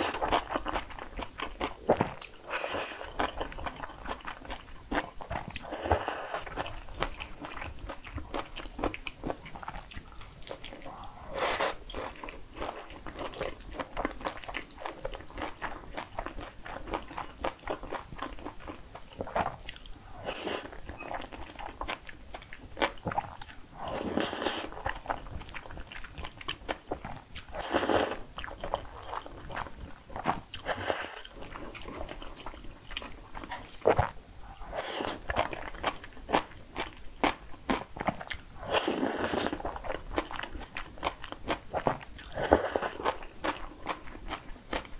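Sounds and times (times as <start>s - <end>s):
wet chewing: 0.0s - 44.9s
slurping noodles: 27.5s - 28.2s, 38.6s - 39.6s.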